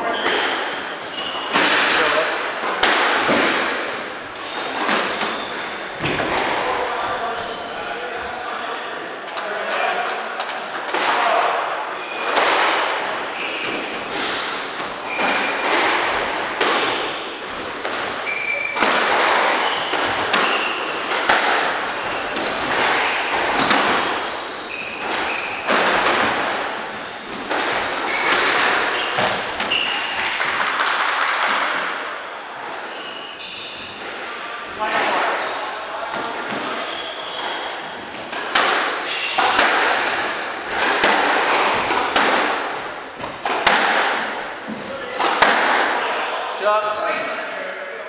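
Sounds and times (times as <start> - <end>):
shoes squeaking on wooden floor: 0.0 - 2.1, 3.1 - 6.5, 7.1 - 8.6, 12.0 - 30.3, 31.3 - 35.6, 36.2 - 45.5
squash ball cracking off walls: 12.3 - 24.4, 25.0 - 31.9, 38.2 - 46.0.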